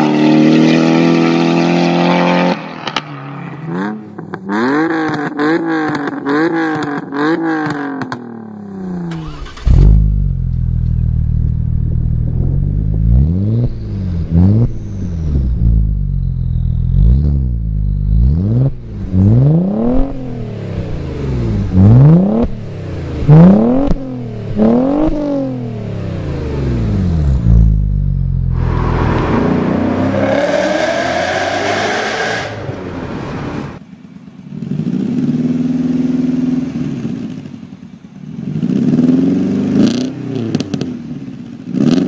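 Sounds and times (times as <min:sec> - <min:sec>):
car engine revving: 0:00.0 - 0:33.9
car exhaust idling and revving: 0:03.6 - 0:41.9
car engine accelerating from inside: 0:09.2 - 0:32.0.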